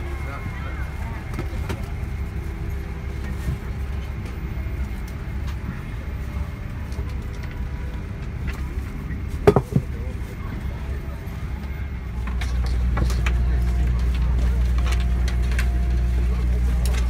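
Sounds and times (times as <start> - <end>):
airliner cabin rumble: 0.0 - 17.0.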